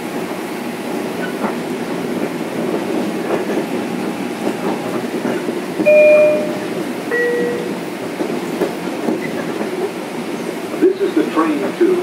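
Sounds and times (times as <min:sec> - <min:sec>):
steady noise inside train car: 0:00.0 - 0:12.0
two-note train chime: 0:05.9 - 0:07.9.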